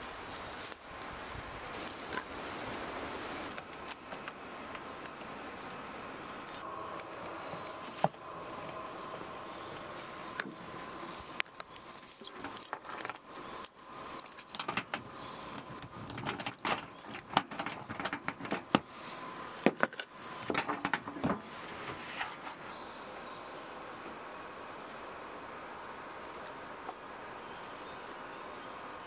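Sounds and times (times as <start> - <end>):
padlocks clicking and jingling: 11.4 - 18.9, 19.5 - 21.4.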